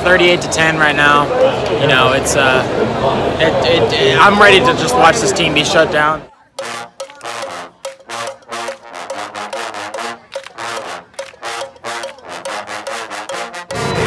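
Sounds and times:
marching band short chords: 0:06.5 - 0:14.0.

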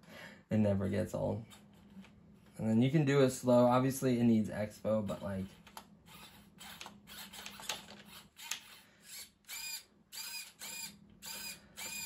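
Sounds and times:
servos whining in short bursts: 0:06.1 - 0:12.0.

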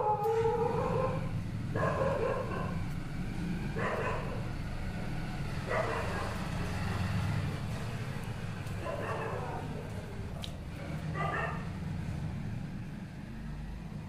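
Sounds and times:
dog barking: 0:00.0 - 0:02.9, 0:03.7 - 0:04.5, 0:05.6 - 0:06.5, 0:08.8 - 0:09.7, 0:11.1 - 0:11.7.

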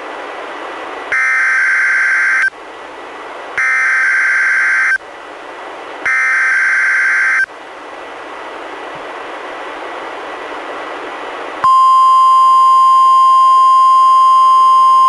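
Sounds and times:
radio hiss: 0:01.1 - 0:02.6, 0:03.5 - 0:05.1, 0:06.0 - 0:07.6
digital data tones: 0:03.6 - 0:05.0, 0:06.1 - 0:07.5.

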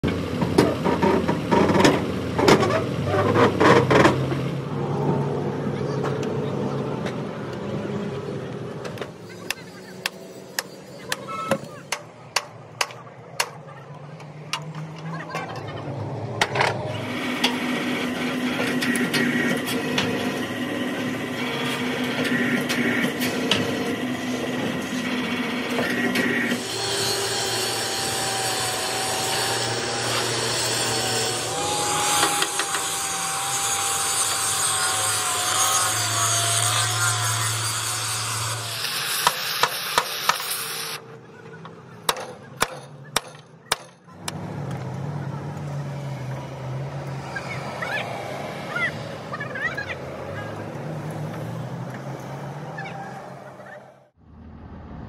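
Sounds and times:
angle grinder grinding steel: 0:16.8 - 0:41.0.

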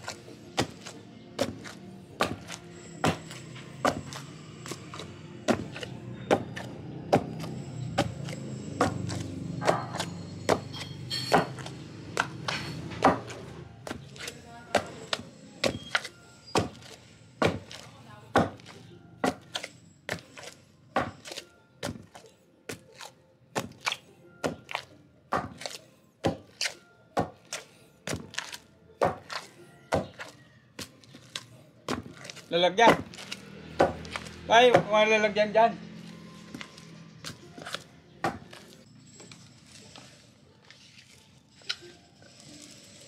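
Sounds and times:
wooden pestle pounding mortar: 0:00.0 - 0:35.2, 0:36.5 - 0:38.8.

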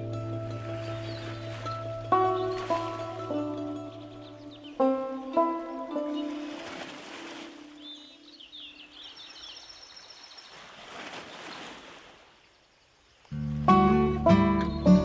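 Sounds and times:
background music: 0:00.0 - 0:07.8, 0:13.4 - 0:15.0
birds chirping: 0:00.0 - 0:15.0
strummed acoustic guitar music: 0:13.4 - 0:15.0.

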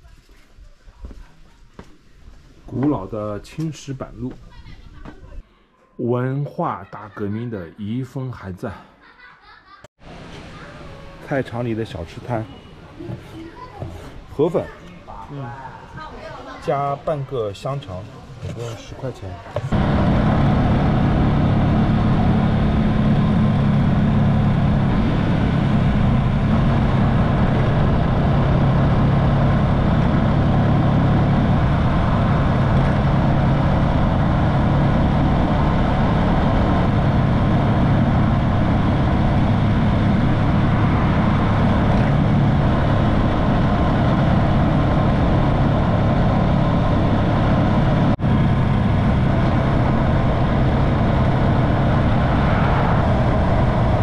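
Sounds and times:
road noise: 0:01.8 - 0:05.4, 0:10.0 - 0:54.0
motorcycle engine running: 0:19.6 - 0:54.0.

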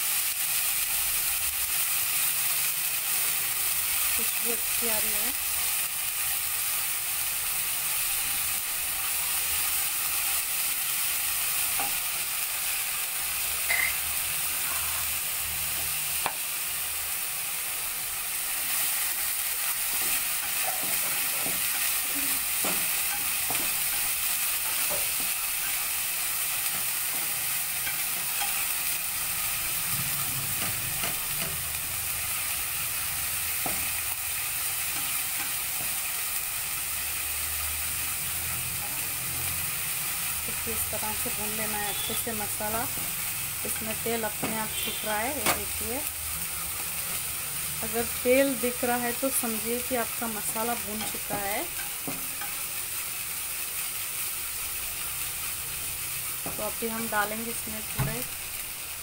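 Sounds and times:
paste sizzling in oil: 0:00.0 - 0:59.0
spatula scraping and tapping a pan: 0:19.9 - 0:21.9, 0:22.6 - 0:25.7.

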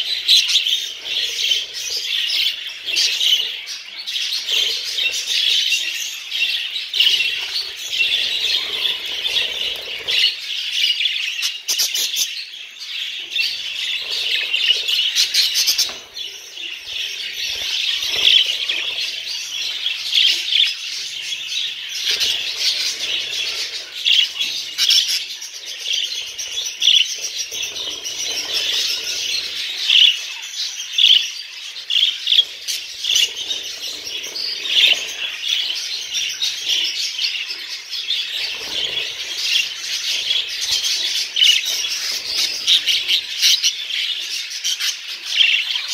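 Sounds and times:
budgerigars chattering: 0:13.2 - 0:45.9.

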